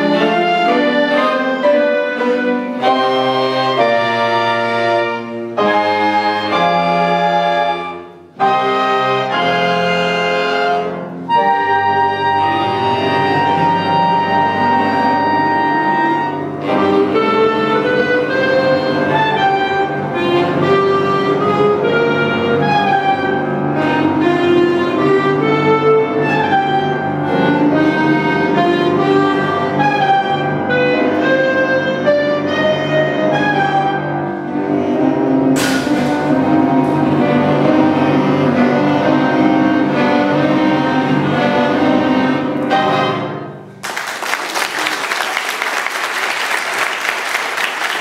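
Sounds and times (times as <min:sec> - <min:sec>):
clarinet ensemble playing chords: 0:00.0 - 0:43.8
audience applause: 0:43.8 - 0:48.0.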